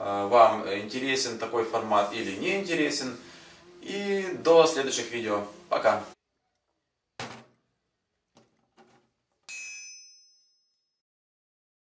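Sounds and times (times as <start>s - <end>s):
thud: 7.2s - 7.6s
bright ding: 9.5s - 11.0s.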